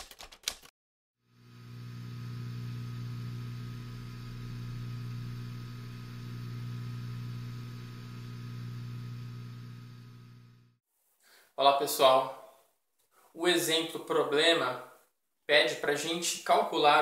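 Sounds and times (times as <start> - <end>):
steady low hum: 1.4 - 10.8.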